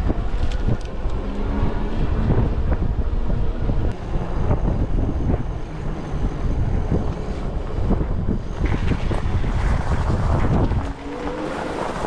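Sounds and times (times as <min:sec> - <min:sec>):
wind buffeting microphone: 0:00.0 - 0:12.0
tyres rumbling over rough lane: 0:00.9 - 0:12.0.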